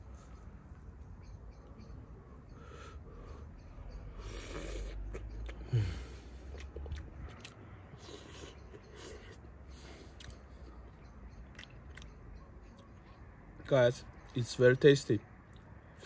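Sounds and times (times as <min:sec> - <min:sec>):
mouth clicks: 0:04.2 - 0:10.6
chewing and biting bread: 0:04.2 - 0:12.2.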